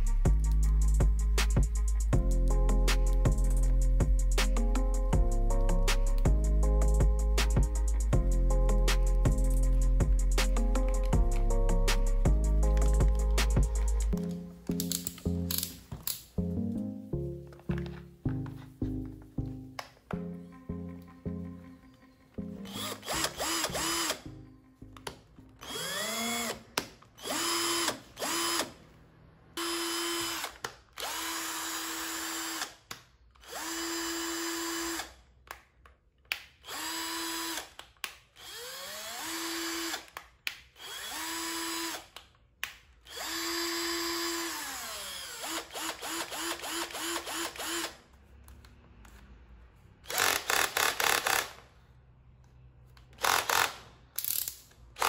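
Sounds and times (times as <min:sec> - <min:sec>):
cordless drill motor whine: 0:22.7 - 0:24.2, 0:25.6 - 0:26.6, 0:27.2 - 0:28.7, 0:29.6 - 0:32.7, 0:33.4 - 0:35.1, 0:36.7 - 0:37.7, 0:38.4 - 0:40.1, 0:40.8 - 0:42.0, 0:43.1 - 0:48.0.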